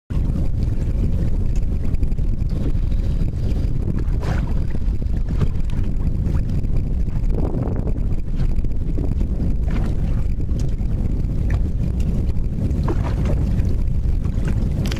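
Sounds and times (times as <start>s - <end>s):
wind buffeting microphone: 0.1s - 14.9s.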